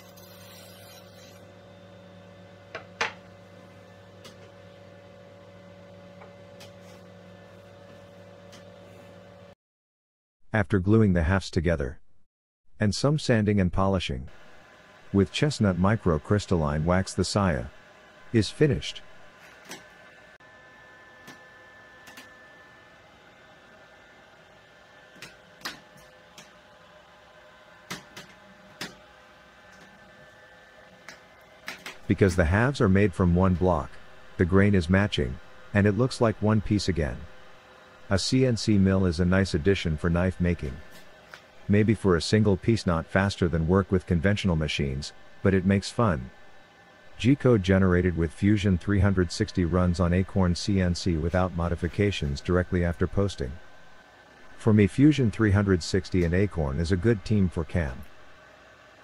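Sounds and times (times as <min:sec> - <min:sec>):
steady low hum: 0:14.1 - 0:59.0.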